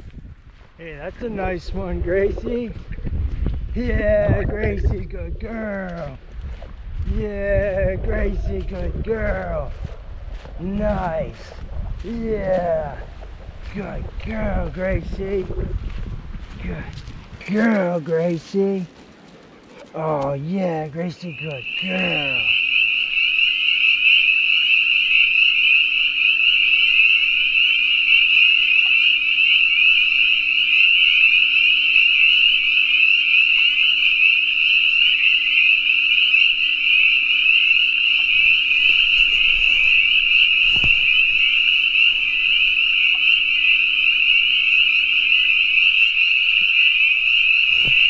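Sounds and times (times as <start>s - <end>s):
frogs calling in chorus: 21.0s - 48.0s.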